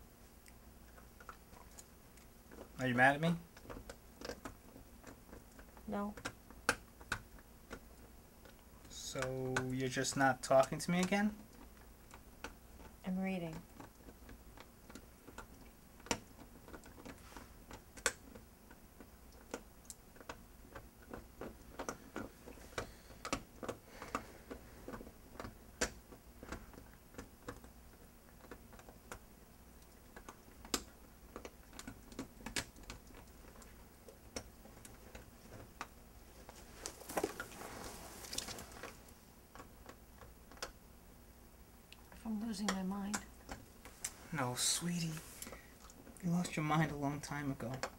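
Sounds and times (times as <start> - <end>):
faint clicks and ticks: 0.4 - 40.8, 41.9 - 47.9
bedclothes rustling: 36.2 - 39.2, 43.9 - 45.8.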